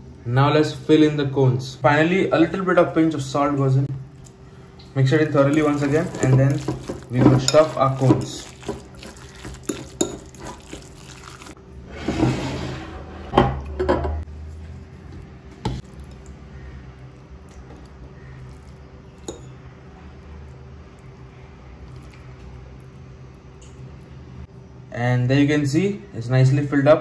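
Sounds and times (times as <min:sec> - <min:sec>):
quiet food handling: 0:04.0 - 0:11.6
fork scraping glass bowl: 0:05.3 - 0:12.8.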